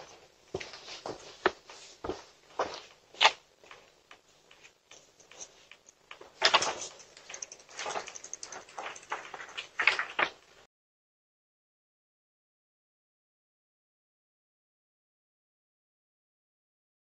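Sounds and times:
soft footsteps: 0.0s - 10.7s
bicycle rattling and scraping: 6.4s - 10.4s.

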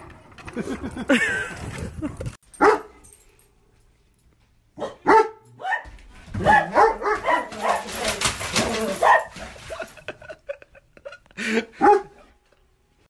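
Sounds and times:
dog barking: 2.6s - 3.0s, 4.8s - 9.4s, 11.8s - 12.3s.

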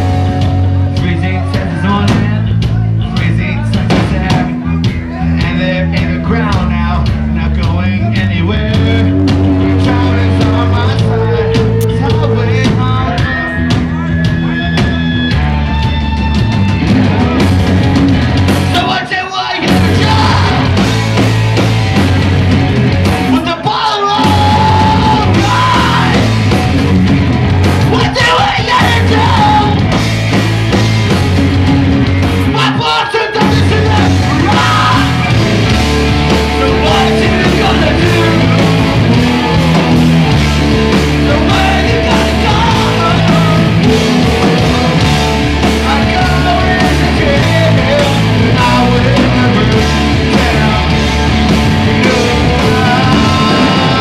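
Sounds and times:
live rock band playing: 0.0s - 54.0s
person singing: 1.0s - 14.9s, 18.7s - 20.9s, 23.3s - 26.4s, 27.8s - 29.8s, 32.5s - 35.4s, 36.3s - 40.0s, 40.9s - 54.0s.

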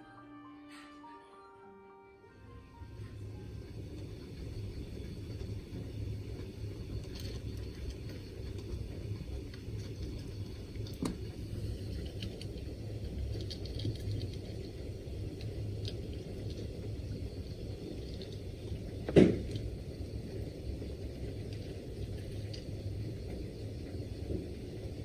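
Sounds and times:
steady low rumble: 2.3s - 25.0s
cat crunching dry kibble: 12.0s - 14.8s.

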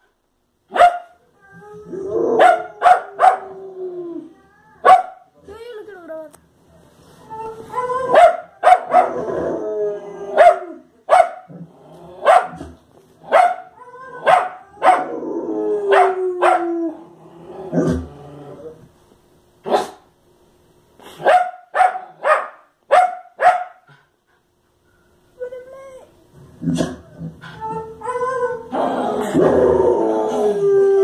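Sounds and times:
dog barking sharply: 0.7s - 1.2s, 4.9s - 5.2s, 21.2s - 23.8s.

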